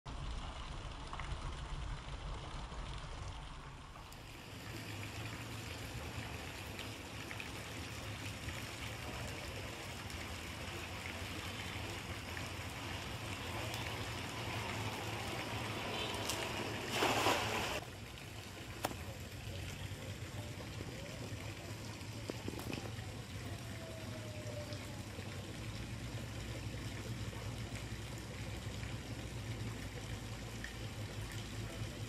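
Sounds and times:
low background rumble: 0:00.1 - 0:08.5
cast net splashing on water: 0:12.4 - 0:17.8.

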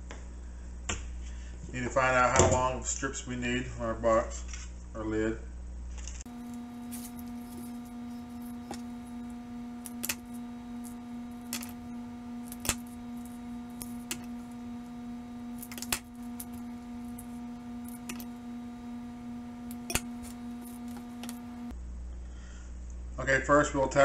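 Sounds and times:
steady low hum: 0:04.8 - 0:23.2.

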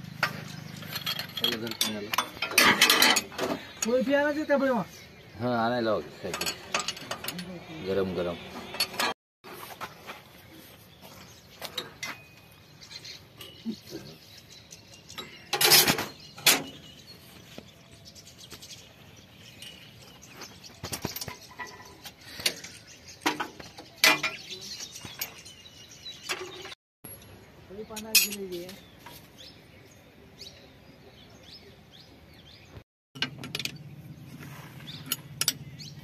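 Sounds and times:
loud metal clank: 0:00.2 - 0:03.7
metallic clinks of spanners: 0:00.4 - 0:03.9.

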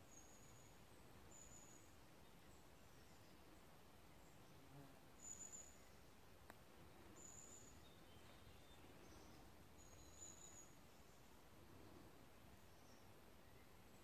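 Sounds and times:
faint click: 0:06.4 - 0:06.6.

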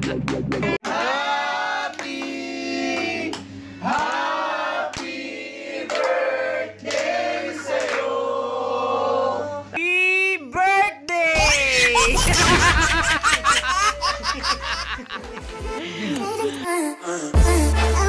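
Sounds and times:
group singing long held notes: 0:00.8 - 0:09.7.

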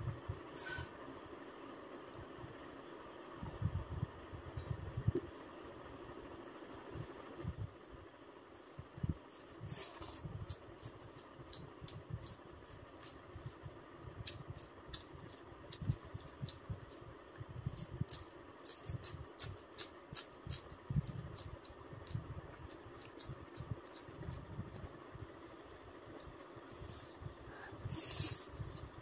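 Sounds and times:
chewing and mouth sounds: 0:10.4 - 0:13.6, 0:14.2 - 0:17.1, 0:17.7 - 0:24.9.

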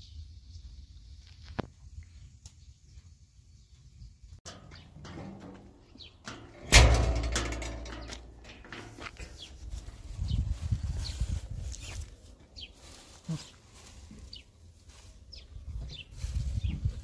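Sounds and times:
metal gate slamming: 0:04.5 - 0:09.0.

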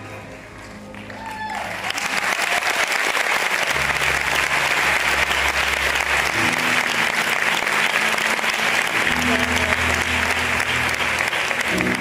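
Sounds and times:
audience applauding: 0:00.0 - 0:12.0
low sustained music notes: 0:03.7 - 0:12.0.

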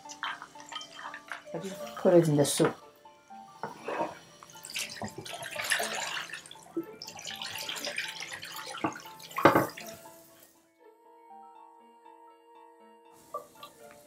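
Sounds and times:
tap water splashing into pot: 0:04.4 - 0:10.0.

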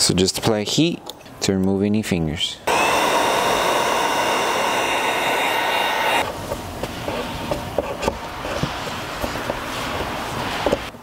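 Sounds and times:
heat gun blowing: 0:02.7 - 0:06.3.

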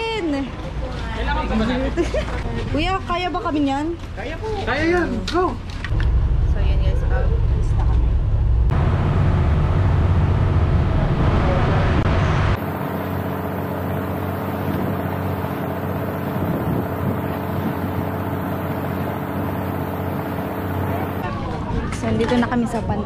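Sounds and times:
motorboat engine humming: 0:05.9 - 0:21.2
wind rumble on microphone: 0:16.0 - 0:18.2.

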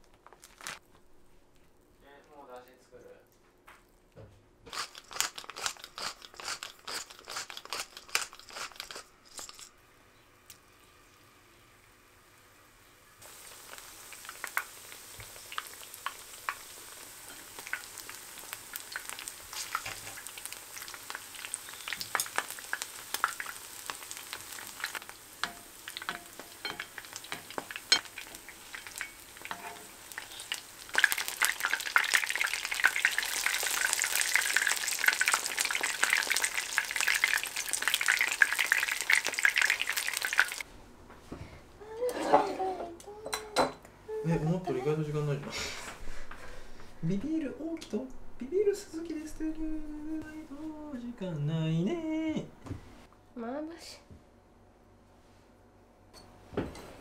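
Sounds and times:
pepper mill grinding: 0:04.7 - 0:09.8
fritters sizzling in oil: 0:04.7 - 0:40.7.

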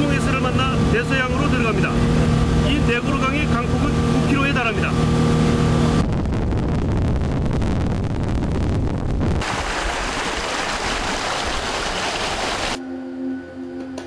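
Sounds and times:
boat wake splashing: 0:00.0 - 0:06.0, 0:09.4 - 0:12.8
wind buffeting microphone: 0:05.0 - 0:12.8
rushing water: 0:09.4 - 0:12.8.

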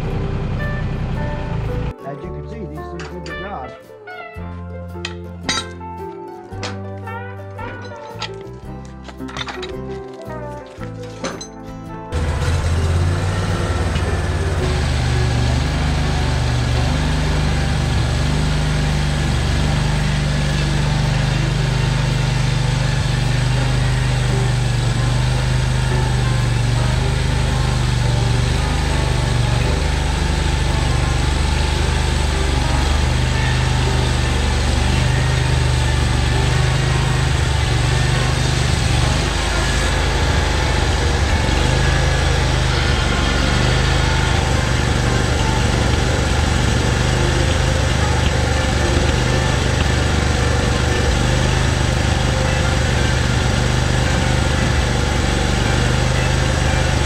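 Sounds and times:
sawmill engine running rough: 0:00.0 - 0:01.9, 0:12.1 - 0:57.0
person speaking: 0:02.0 - 0:03.8.

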